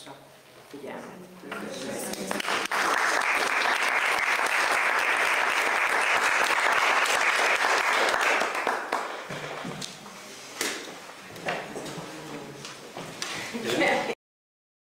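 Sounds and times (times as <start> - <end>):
audience applause: 2.1 - 9.6.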